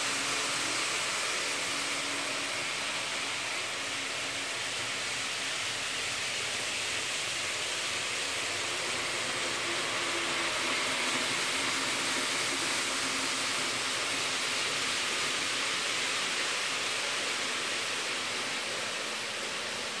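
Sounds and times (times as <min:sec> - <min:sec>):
model train rolling hiss: 0:00.0 - 0:20.0
small train motors humming: 0:00.0 - 0:20.0.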